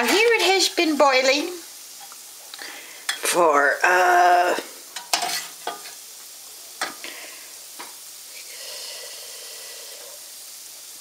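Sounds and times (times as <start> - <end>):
spoon stirring in a pot: 5.0 - 6.0.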